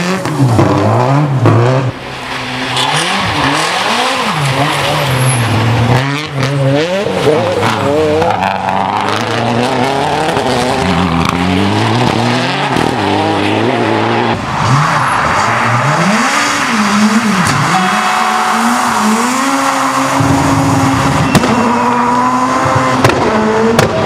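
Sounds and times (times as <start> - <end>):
rally car engines revving: 0.0 - 24.0.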